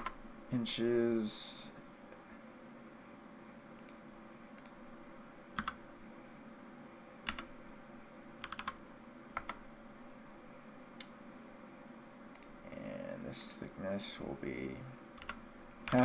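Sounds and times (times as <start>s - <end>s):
keyboard and mouse clicks: 0.0s - 0.2s, 4.6s - 4.8s, 5.6s - 5.8s, 7.2s - 7.5s, 8.4s - 8.8s, 9.4s - 9.6s, 10.9s - 11.2s, 15.2s - 16.0s
faint steady hum: 0.0s - 16.0s.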